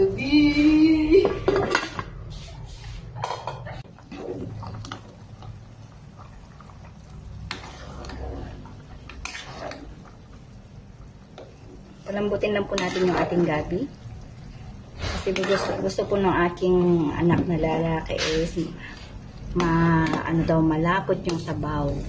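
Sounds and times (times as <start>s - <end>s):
metal ladle scraping a pot: 1.4s - 5.1s, 7.3s - 10.3s, 11.2s - 16.7s
low steady hum: 2.8s - 22.0s.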